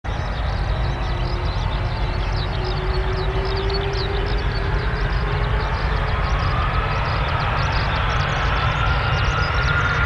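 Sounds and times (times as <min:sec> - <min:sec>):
low hum: 0:00.1 - 0:10.0
jet engines spooling up: 0:00.2 - 0:10.0
whine rising in pitch: 0:00.2 - 0:10.0.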